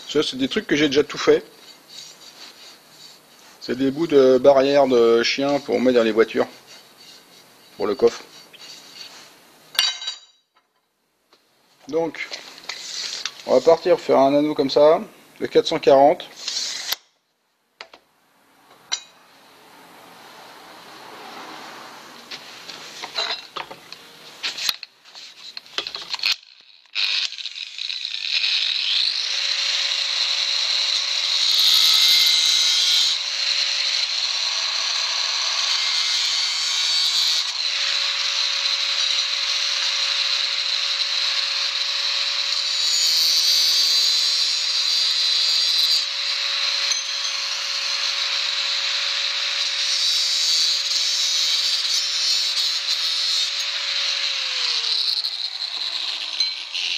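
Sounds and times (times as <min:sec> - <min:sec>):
angle grinder cutting steel: 0:00.0 - 0:10.3, 0:16.4 - 0:17.0, 0:20.7 - 0:56.9
metal rod clinking: 0:09.7 - 0:10.4, 0:46.9 - 0:47.5.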